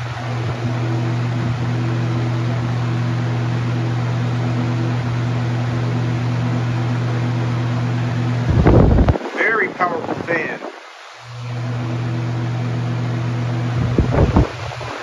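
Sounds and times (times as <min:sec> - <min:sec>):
box fan air rush: 0:00.0 - 0:15.0
electrical motor hum: 0:00.0 - 0:15.0
wind buffeting microphone: 0:08.3 - 0:10.8, 0:13.7 - 0:15.0.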